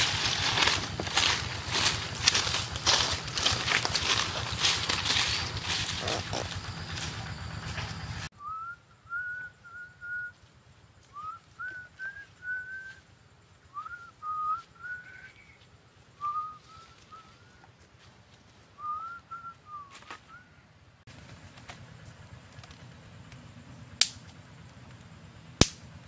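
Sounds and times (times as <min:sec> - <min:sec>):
bird singing whistled notes: 0:08.0 - 0:10.4, 0:11.1 - 0:13.0, 0:13.6 - 0:17.6.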